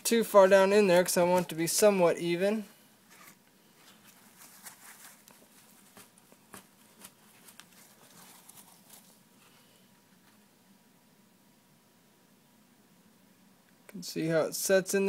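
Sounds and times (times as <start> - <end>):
paper towel rustling on leather: 3.1 - 9.3.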